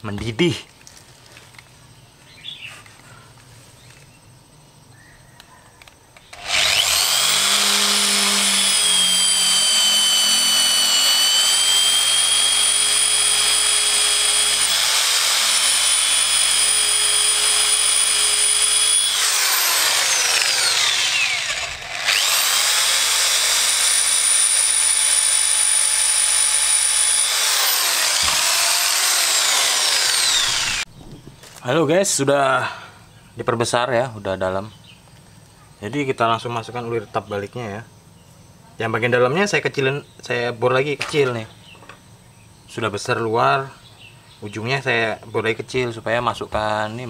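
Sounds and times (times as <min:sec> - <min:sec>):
electric drill whining: 0:06.3 - 0:30.9.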